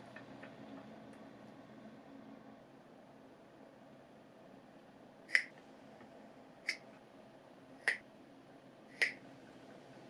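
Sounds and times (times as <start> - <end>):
sharp snap-like clicks: 5.3 - 5.6, 7.8 - 8.0, 8.9 - 9.2.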